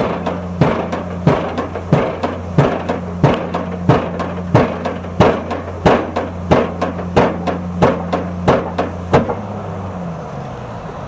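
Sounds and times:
hydraulic hammer striking pile: 0.0s - 9.6s
engine hum: 0.0s - 11.0s.

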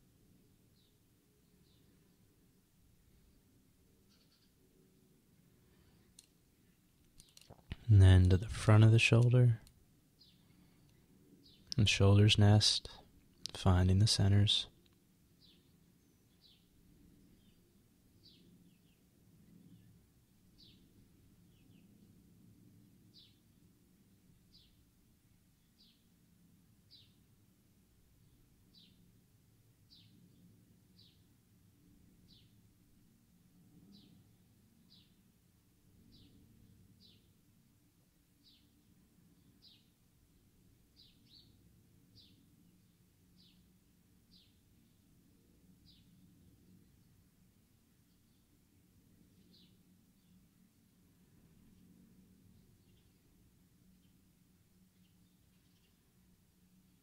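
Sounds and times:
low room hum: 0.0s - 57.0s
faint bird chirps: 3.0s - 8.2s, 51.3s - 57.0s
distant bird chirping: 3.2s - 4.7s.

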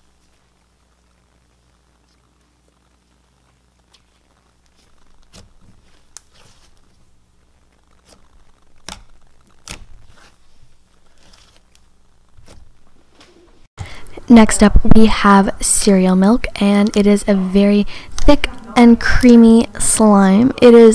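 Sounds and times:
slime tearing and crackling: 3.8s - 12.7s.

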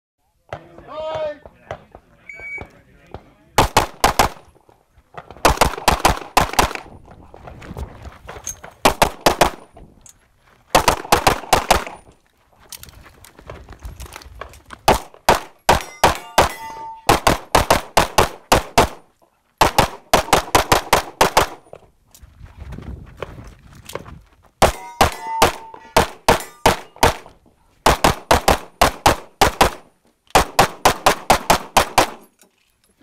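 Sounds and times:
pistol shots: 3.1s - 4.5s, 5.2s - 6.9s, 8.8s - 9.7s, 10.8s - 12.0s, 14.9s - 19.0s, 19.6s - 21.6s, 24.6s - 32.3s.

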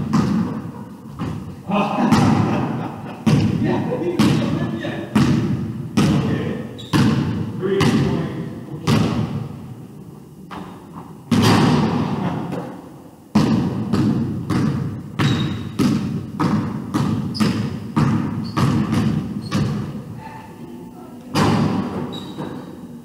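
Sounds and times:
basketball bouncing on wooden floor: 0.0s - 1.5s, 3.2s - 3.6s, 4.2s - 8.2s, 8.8s - 9.5s, 10.5s - 12.2s, 13.3s - 20.0s.

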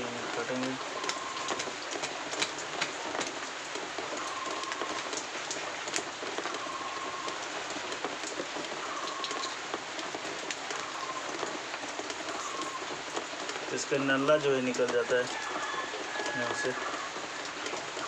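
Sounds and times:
rain hissing: 0.0s - 18.0s.

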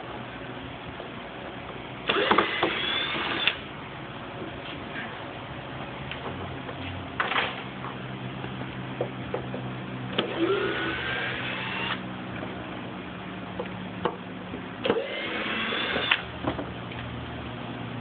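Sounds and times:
cordless drill whining: 2.1s - 3.6s, 10.2s - 12.0s, 14.9s - 16.2s.

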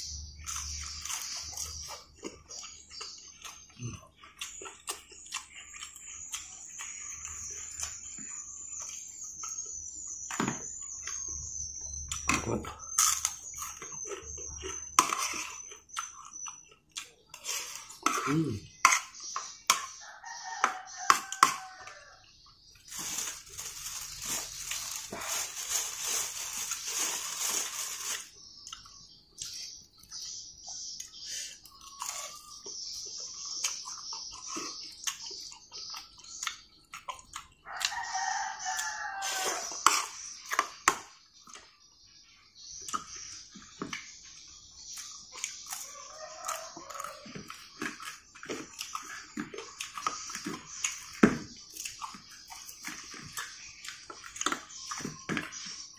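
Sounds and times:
rooster crowing: 20.0s - 22.2s, 37.7s - 39.8s, 45.7s - 47.5s.

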